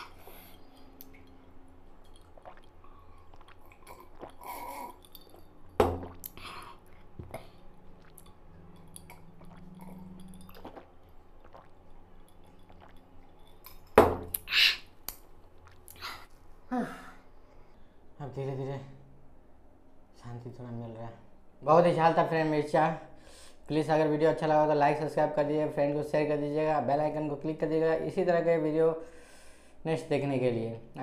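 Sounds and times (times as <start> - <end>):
man sipping and swallowing: 0.0 - 16.4.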